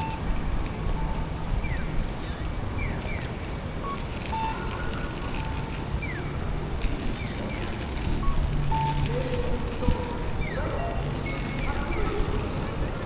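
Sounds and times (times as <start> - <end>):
brief beeps: 0.0 - 0.3, 3.8 - 6.3, 8.2 - 9.3
traffic rumble: 0.0 - 13.0.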